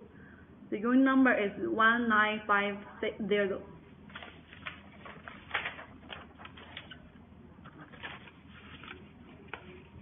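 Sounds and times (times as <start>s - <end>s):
paper rustling and sliding: 4.1s - 7.1s, 7.7s - 10.0s.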